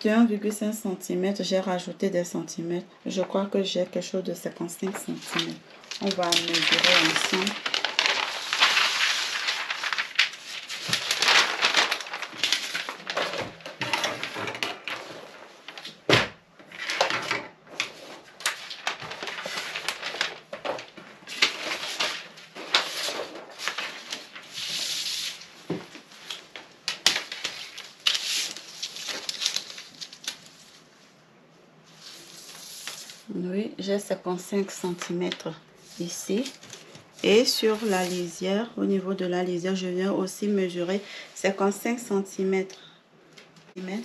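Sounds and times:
fabric rustling and crinkling: 4.7s - 31.2s.

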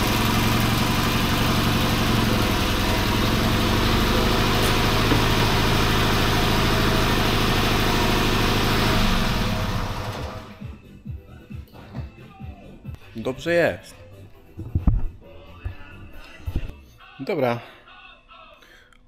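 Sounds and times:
car engine running: 0.0s - 10.6s.

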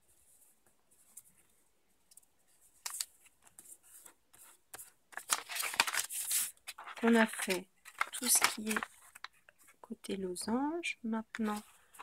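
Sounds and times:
paper being creased: 5.2s - 9.3s.

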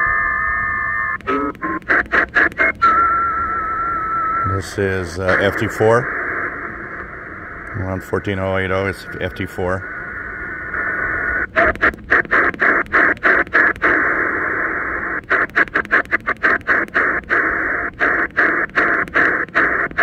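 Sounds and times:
faint digital-mode tones: 0.0s - 9.8s
shortwave radio hiss: 0.0s - 20.0s.

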